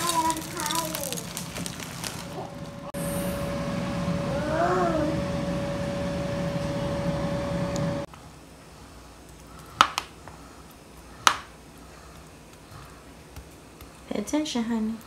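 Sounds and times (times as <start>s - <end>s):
appliance hum: 0.0s - 15.0s.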